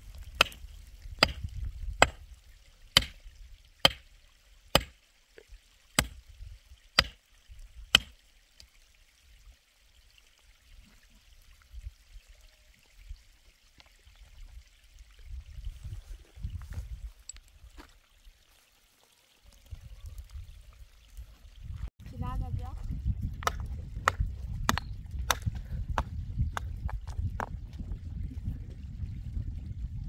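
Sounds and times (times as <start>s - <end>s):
hand tool chopping: 0.4s - 0.6s, 1.2s - 1.4s, 2.0s - 2.2s, 3.0s - 3.2s, 3.8s - 4.0s, 4.8s - 5.0s, 6.0s - 6.2s, 7.9s - 8.1s.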